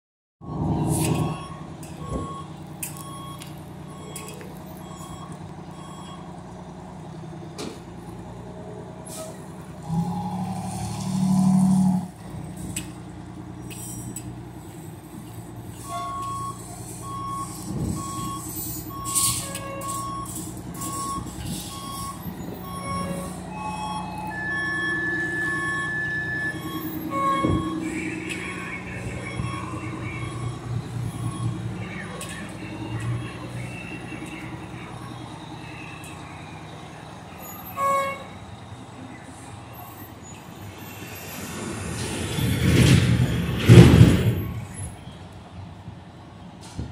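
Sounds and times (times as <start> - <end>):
reversing alarm beeps: 0.4 - 6.3, 15.9 - 36.2
fire engine running: 0.4 - 46.9.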